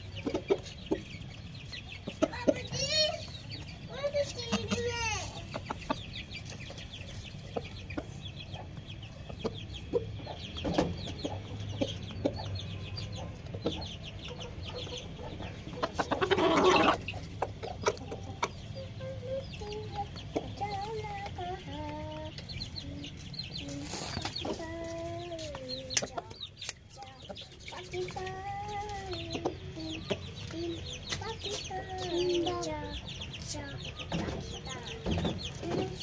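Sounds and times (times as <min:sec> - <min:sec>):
rooster clucking: 0:03.9 - 0:06.1, 0:13.2 - 0:21.9.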